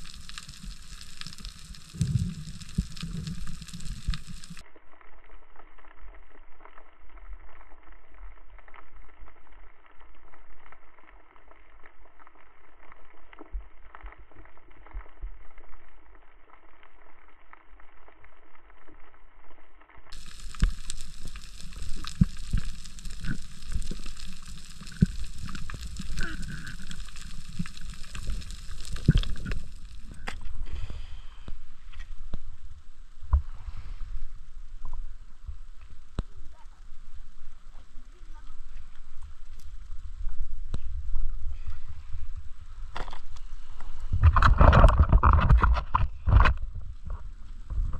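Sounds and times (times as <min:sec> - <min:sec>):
underwater water wash: 0:00.0 - 0:04.7, 0:20.1 - 0:47.9.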